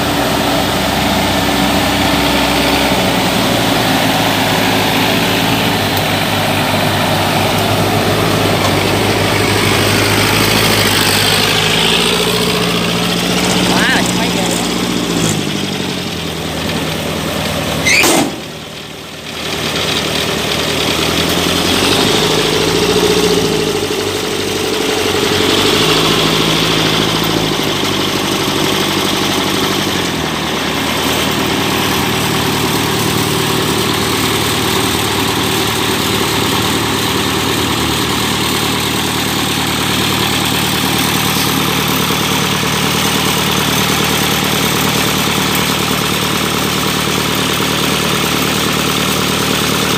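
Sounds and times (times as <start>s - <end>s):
diesel harvester engine running: 0.0s - 49.9s.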